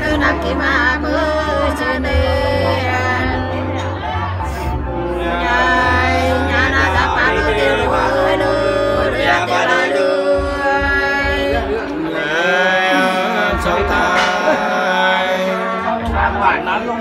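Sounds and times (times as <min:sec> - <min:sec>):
women singing: 0:00.0 - 0:16.2
men singing: 0:00.0 - 0:17.0.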